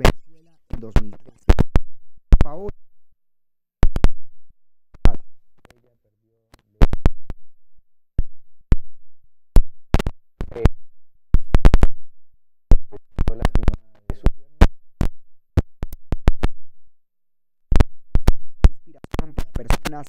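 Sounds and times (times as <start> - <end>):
clipped man's voice: 0.0 - 1.4, 2.4 - 2.7, 12.9 - 14.6.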